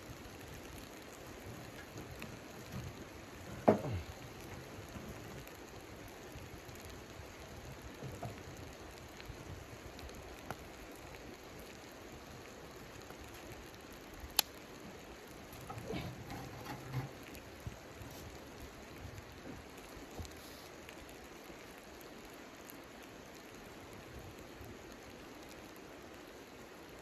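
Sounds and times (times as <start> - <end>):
crackling sizzle of frying: 0.0 - 27.0
knocks of wood and firebox: 1.7 - 5.2, 15.6 - 17.3
firewood scraping into metal firebox: 15.6 - 17.4.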